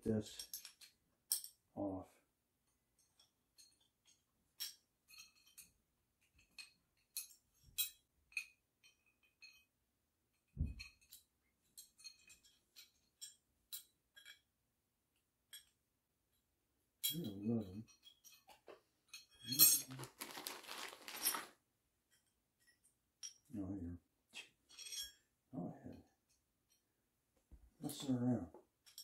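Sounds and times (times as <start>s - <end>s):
small metal fittings clinking: 0.3s - 1.6s, 3.0s - 14.5s, 17.0s - 21.5s, 24.7s - 25.3s, 28.8s - 29.0s.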